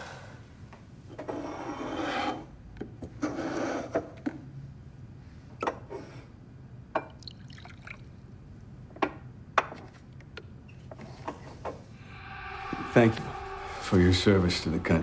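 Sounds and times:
liquor trickling into glass: 7.0s - 8.1s.

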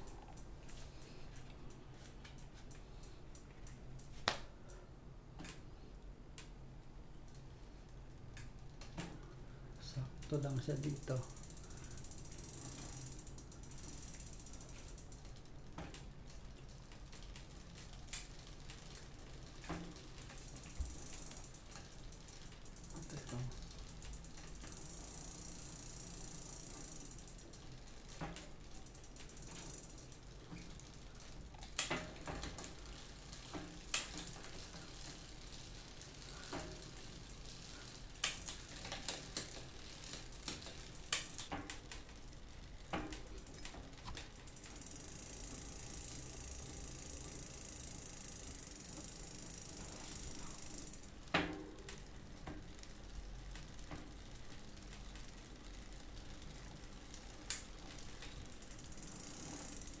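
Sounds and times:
bicycle chain running: 7.2s - 60.0s
freewheel ratcheting clicks: 10.2s - 16.0s, 16.9s - 60.0s.

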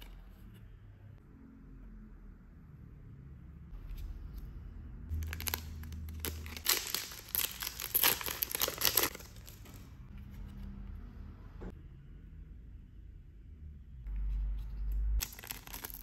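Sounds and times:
foil pack tearing and crinkling: 5.2s - 9.7s, 15.2s - 16.0s.

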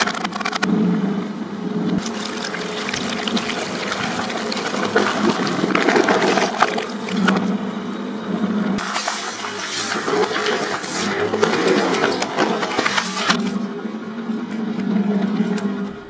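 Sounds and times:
shredder motor drone: 0.6s - 16.0s
liquid splashing and spraying: 2.0s - 7.4s, 8.8s - 13.4s
plastic crunching and cracking: 2.0s - 7.4s.

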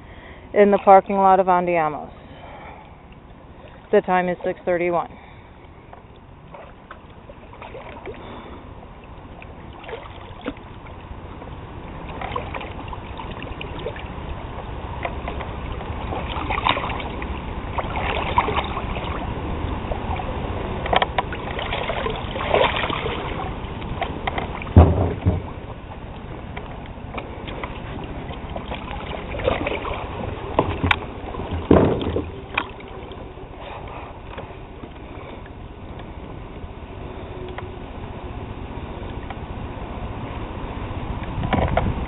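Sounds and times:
water sloshing around wading person: 0.6s - 37.5s
heavy thump: 24.8s - 25.6s, 30.8s - 32.3s.

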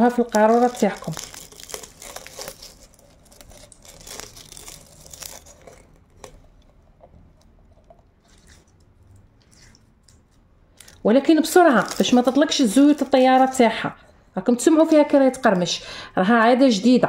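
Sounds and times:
dried leaves crackling and crunching: 0.0s - 6.4s, 9.4s - 13.6s.

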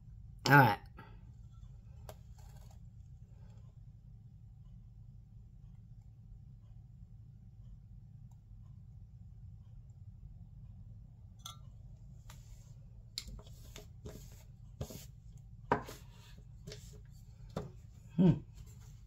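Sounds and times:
steady low hum: 0.0s - 19.0s
tools and cups knocking on table: 15.7s - 16.0s.

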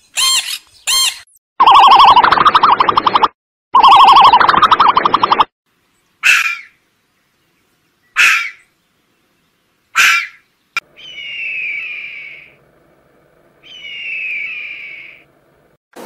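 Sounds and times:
dolphins whistling underwater: 1.6s - 5.5s, 11.0s - 12.6s, 13.6s - 15.3s
fox barking: 10.0s - 10.4s
steady hum: 10.9s - 16.0s.

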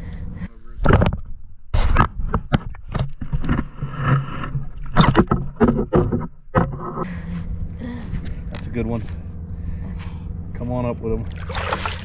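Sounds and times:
water splashing and sloshing: 11.2s - 12.0s.

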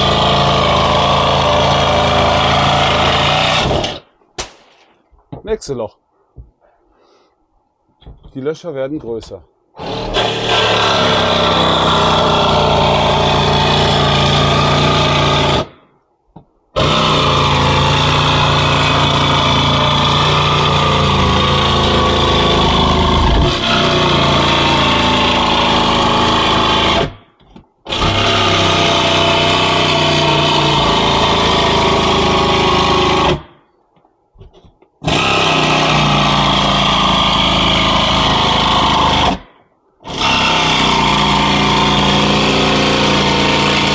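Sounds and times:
electric saw cutting roof: 0.0s - 4.0s, 9.8s - 15.7s, 16.8s - 27.2s, 27.9s - 33.5s, 35.0s - 43.9s.

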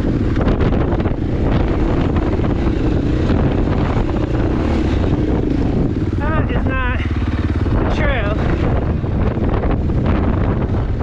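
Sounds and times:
dirt bike engine running: 0.0s - 11.0s
wind buffeting microphone: 0.0s - 11.0s.

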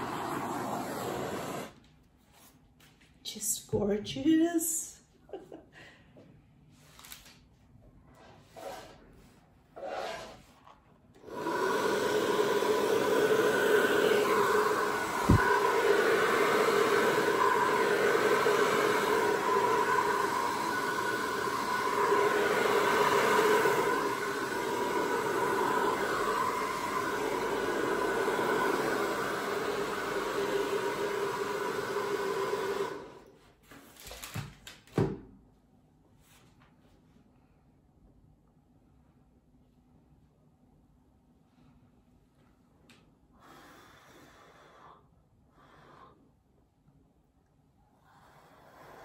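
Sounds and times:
hair dryer running: 0.0s - 1.8s, 11.2s - 33.4s.

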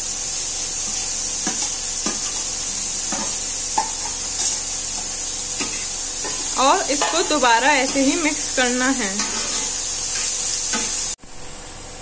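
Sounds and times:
onions sizzling in a pan: 0.0s - 12.0s
metal spatula scraping steel plate: 9.1s - 11.0s.

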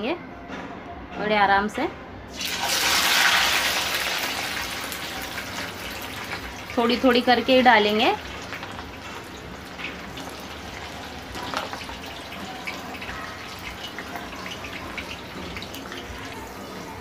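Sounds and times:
onions deep-frying in oil: 2.3s - 17.0s.

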